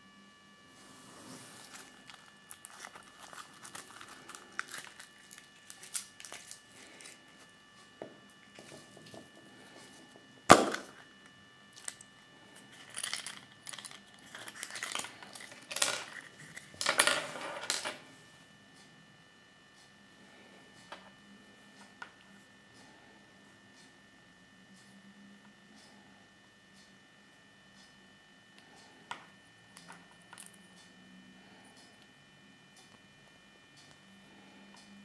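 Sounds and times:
foil wrapper crinkling: 1.5s - 7.2s, 12.7s - 16.6s.

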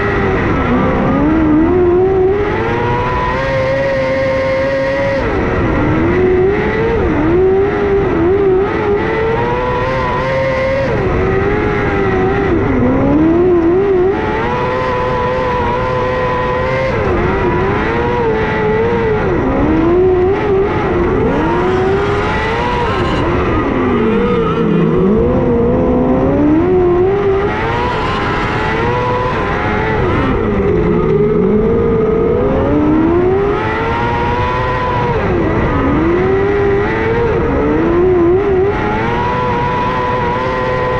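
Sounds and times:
racing car engine revs: 0.0s - 40.9s.

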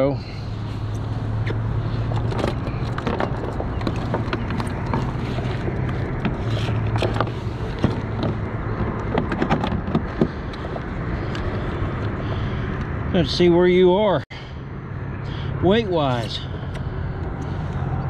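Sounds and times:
clicks and knocks in plastic kayak: 1.4s - 10.8s.

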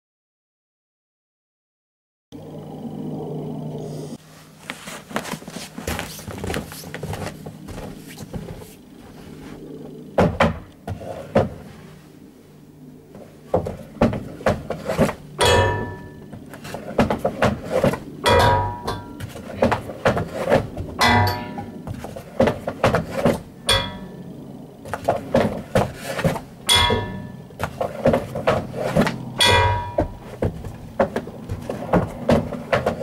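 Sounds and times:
puck clanging on metal crossbar: 15.4s - 16.4s, 17.0s - 20.3s, 21.0s - 21.8s, 23.7s - 24.2s, 26.7s - 30.6s.

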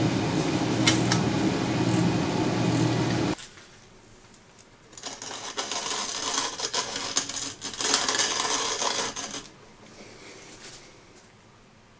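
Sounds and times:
coffee grinder crunching beans: 4.9s - 9.5s.

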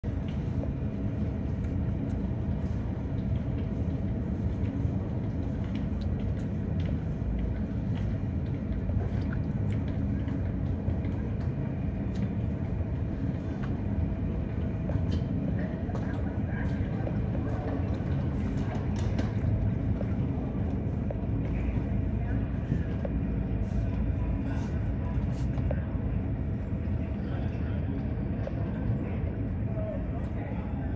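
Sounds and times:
vehicle low rumble: 0.0s - 30.9s.

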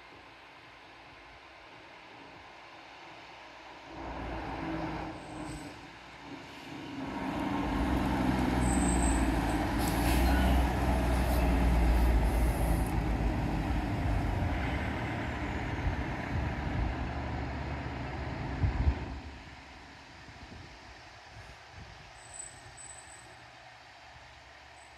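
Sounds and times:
diesel truck driving past: 3.9s - 19.5s.

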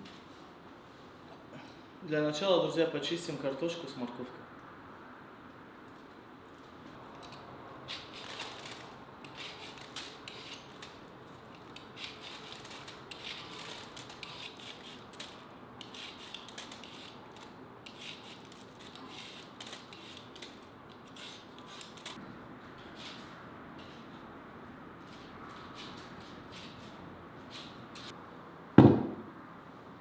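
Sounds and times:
peeler scraping vegetable skin: 7.8s - 22.2s.

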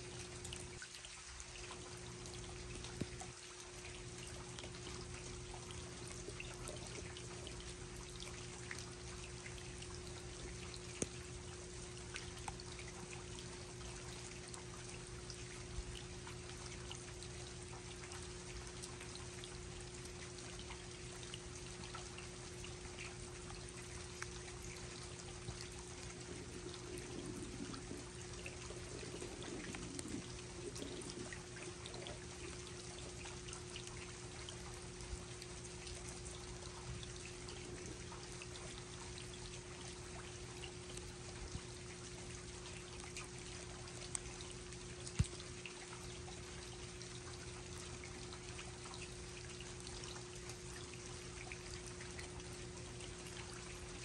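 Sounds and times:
low hum: 21.8s - 40.2s
steady rain falling: 25.1s - 33.1s.

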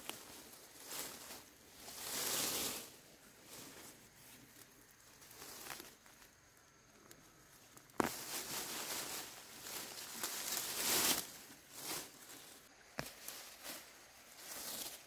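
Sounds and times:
rustling: 0.0s - 15.0s.

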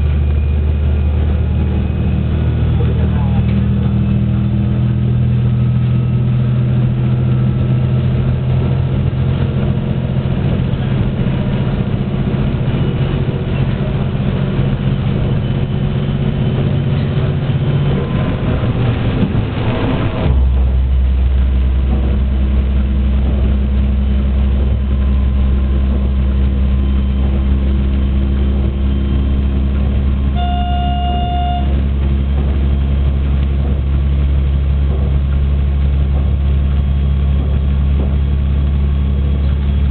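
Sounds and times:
diesel railcar engine drone: 0.0s - 39.9s
rail noise: 0.0s - 39.9s
train horn note: 30.3s - 31.9s.

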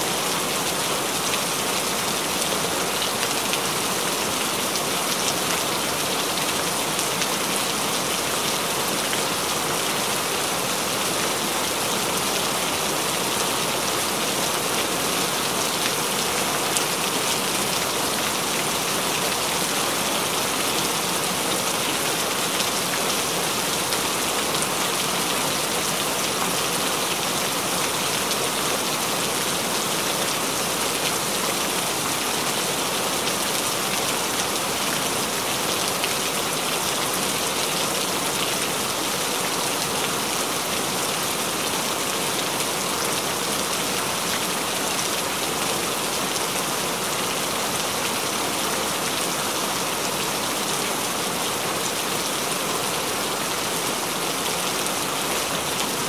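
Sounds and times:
rain falling steadily: 0.0s - 56.0s.

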